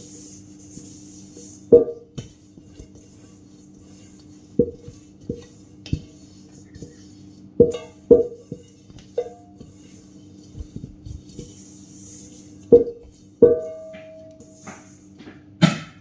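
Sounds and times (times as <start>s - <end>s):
cloth wiping bowl: 0.0s - 15.2s
metal bowl knocks: 7.6s - 8.4s, 12.8s - 14.4s.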